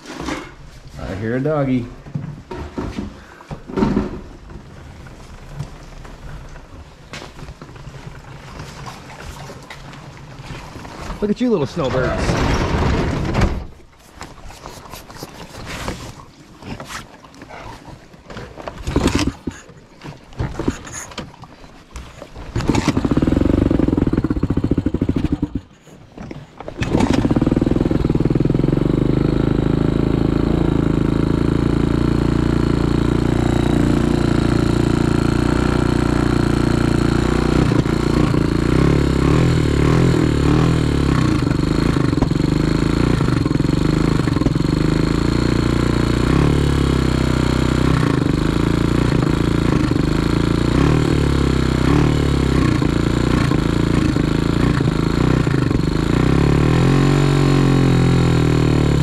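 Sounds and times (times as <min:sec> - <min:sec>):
knocks and clatters: 0:02.0 - 0:17.0, 0:18.3 - 0:28.6
dirt bike engine running: 0:02.4 - 0:16.2, 0:18.3 - 0:19.7, 0:22.4 - 0:59.0.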